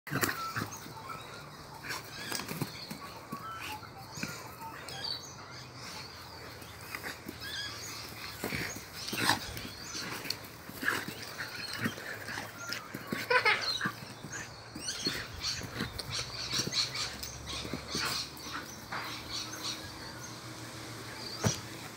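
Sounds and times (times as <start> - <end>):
dog playful vocal sounds: 0.1 - 19.9.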